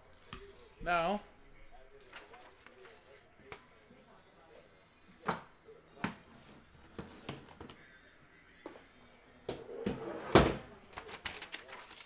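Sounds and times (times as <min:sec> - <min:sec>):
paper rustling: 0:01.9 - 0:03.6, 0:10.8 - 0:12.0.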